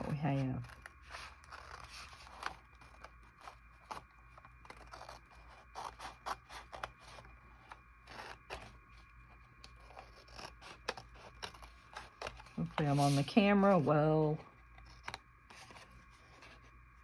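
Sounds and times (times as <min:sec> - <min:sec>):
scissors snipping paper: 0:00.0 - 0:08.7, 0:09.6 - 0:13.0.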